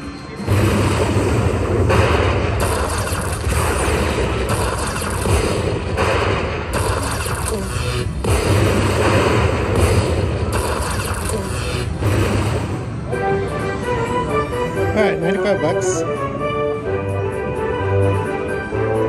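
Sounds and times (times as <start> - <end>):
slot machine rapid clicking: 1.9 - 12.6.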